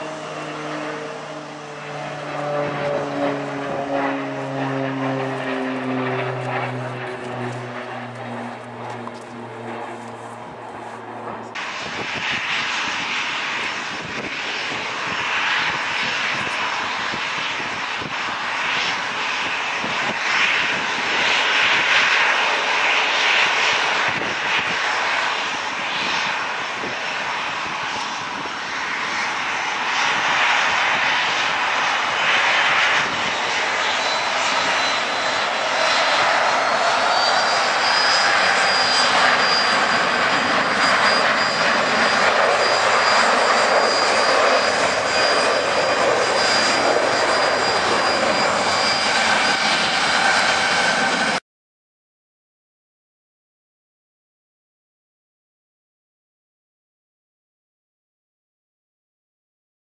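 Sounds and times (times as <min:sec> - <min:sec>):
jet engines at take-off power: 0:00.0 - 0:51.4.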